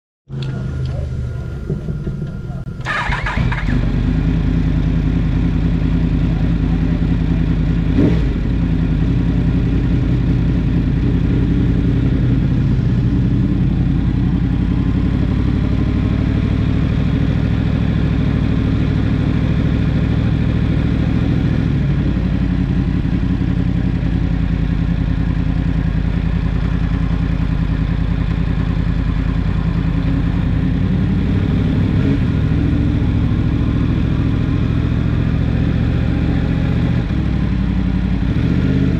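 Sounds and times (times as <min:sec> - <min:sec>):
motorcycle engine idling: 0:00.3 - 0:38.9
clunk: 0:00.4 - 0:02.8.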